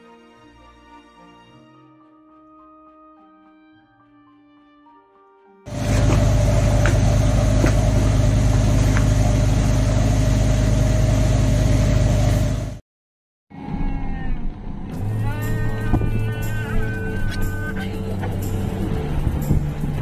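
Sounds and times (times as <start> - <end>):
road rumble: 5.7 - 12.8, 14.2 - 20.0
vehicle engine hum: 5.7 - 12.8, 14.4 - 20.0.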